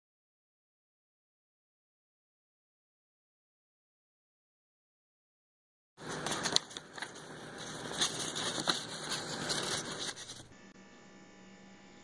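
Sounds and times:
handling noise crackling scrape: 0:06.0 - 0:10.5.

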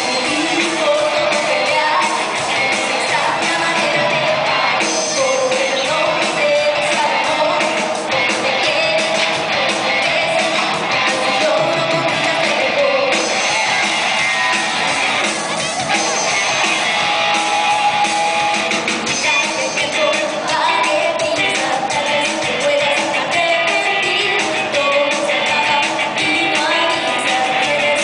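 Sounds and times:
woman singing into microphone: 0:00.0 - 0:15.1, 0:19.1 - 0:28.0
rock band playing: 0:00.0 - 0:28.0.

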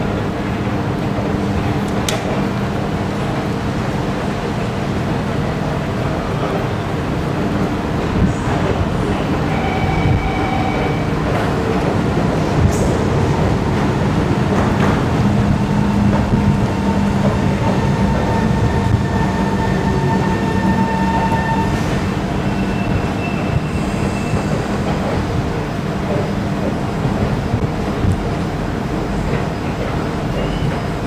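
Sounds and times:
train wheels rumbling: 0:00.0 - 0:31.0.

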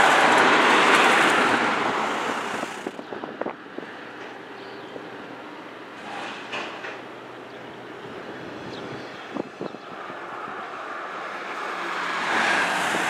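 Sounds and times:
train whoosh: 0:00.0 - 0:03.9, 0:06.0 - 0:07.0, 0:11.9 - 0:13.0
freight train rumbling past: 0:00.0 - 0:13.0.

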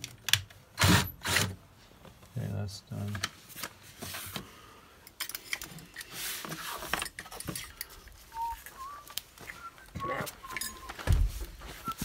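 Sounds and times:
person whistling short notes: 0:08.3 - 0:11.0, 0:11.8 - 0:12.0.

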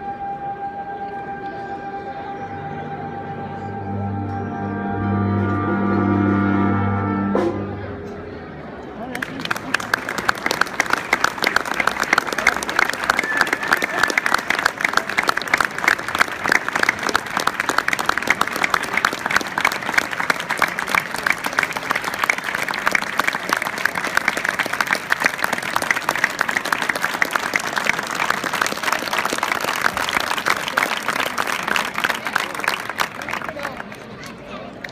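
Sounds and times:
large audience applauding: 0:09.1 - 0:34.9.

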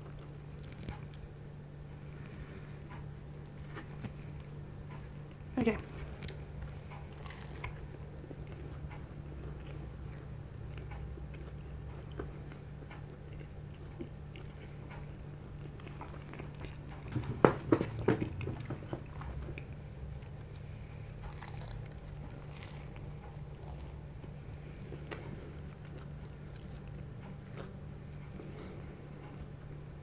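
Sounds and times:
wet chewing mouth sounds: 0:00.0 - 0:01.4, 0:02.0 - 0:29.8
steady low hum: 0:00.0 - 0:30.0
crunchy bites: 0:18.6 - 0:28.7.

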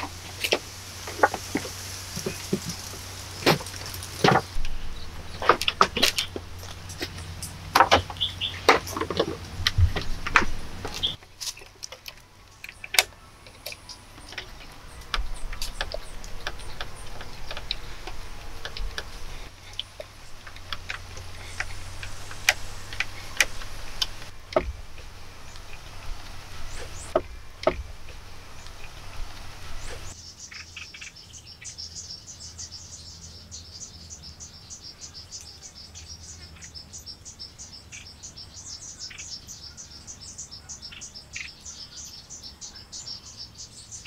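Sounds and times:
wooden knocks and clatter: 0:00.0 - 0:12.2, 0:12.9 - 0:25.8, 0:26.6 - 0:28.8.

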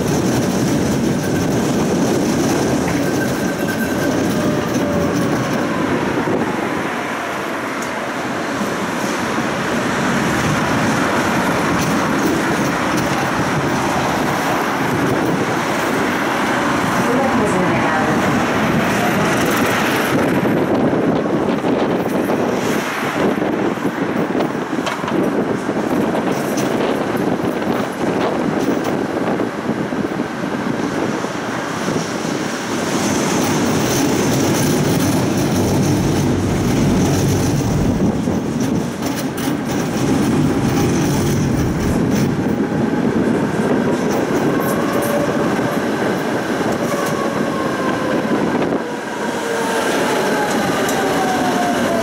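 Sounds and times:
tram rumbling on rails: 0:00.0 - 0:52.0
whining tones sliding downward: 0:33.5 - 0:38.3.

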